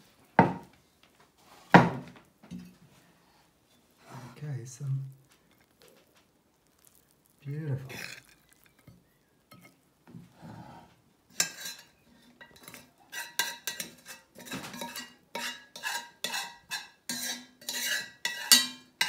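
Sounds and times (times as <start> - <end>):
metal spoon scraping a pot: 7.8 - 9.8, 11.3 - 19.0.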